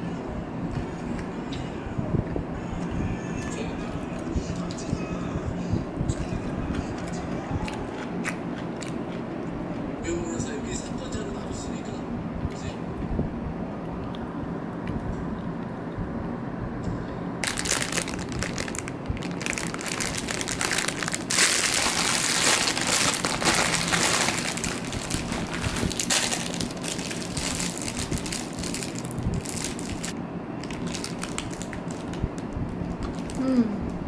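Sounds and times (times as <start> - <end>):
paper bag crinkling and rustling: 17.4 - 32.2.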